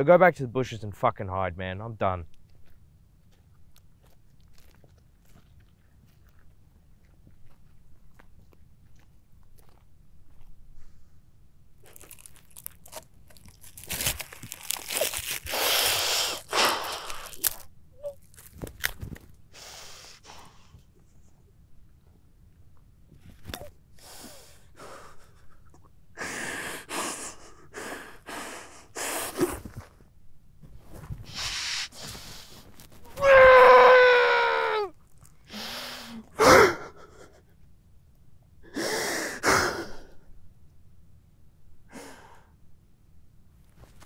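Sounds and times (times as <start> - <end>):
man wailing: 33.2 - 34.9
man sobbing: 36.3 - 37.5.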